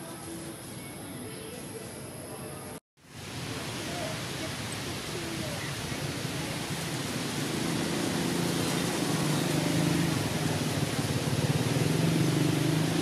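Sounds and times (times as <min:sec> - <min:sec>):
steady hiss: 0:03.0 - 0:13.0
engine humming: 0:05.2 - 0:13.0.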